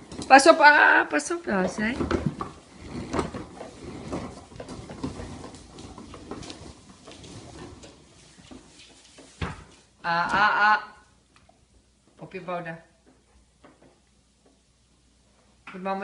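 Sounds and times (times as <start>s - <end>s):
plastic toy wheels rolling: 1.4s - 8.6s.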